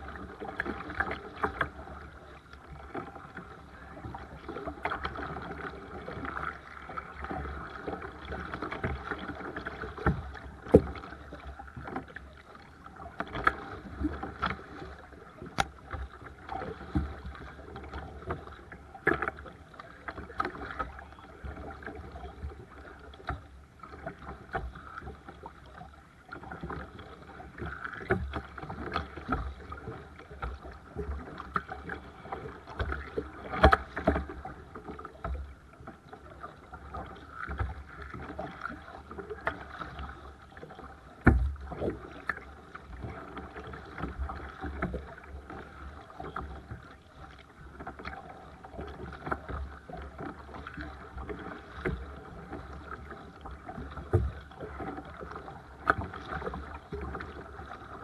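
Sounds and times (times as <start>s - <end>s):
paddle strokes splashing: 0.0s - 58.0s
water lapping against hull: 0.0s - 58.0s
small knocks on kayak: 9.9s - 11.1s, 15.4s - 16.2s, 32.8s - 34.4s, 41.2s - 42.4s.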